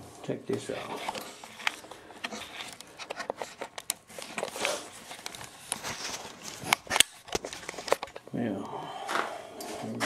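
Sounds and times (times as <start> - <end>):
cardboard and foam rustling: 0.6 - 8.0.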